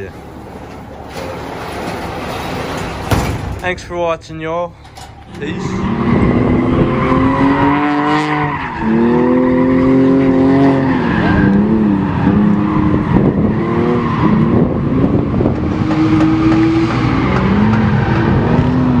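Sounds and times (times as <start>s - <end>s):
car engine revving: 5.2s - 19.0s.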